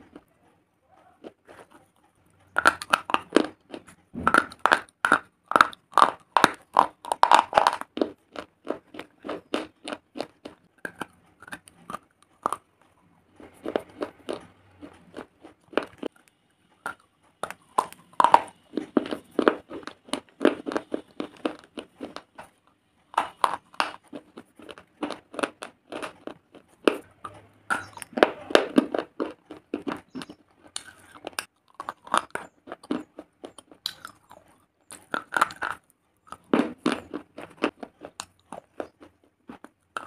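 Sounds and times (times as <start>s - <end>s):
person crunching stone: 23.2s - 27.1s.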